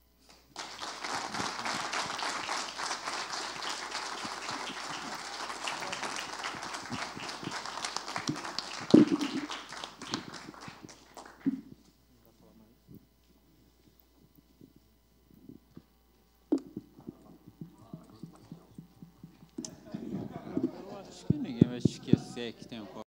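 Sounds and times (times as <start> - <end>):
audience applauding: 0.5 - 11.8.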